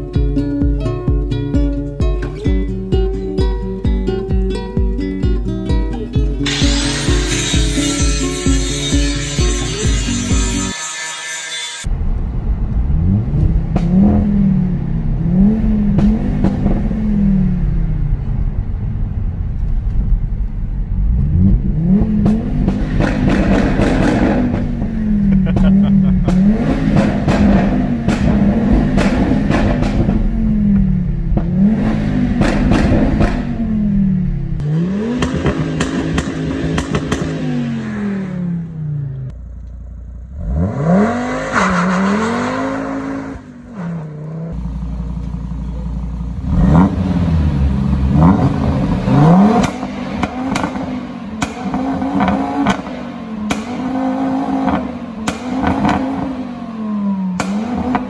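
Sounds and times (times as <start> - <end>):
car engine revving: 11.8 - 58.0
exhaust crackles and pops: 11.9 - 17.0, 17.6 - 37.4, 48.2 - 53.9.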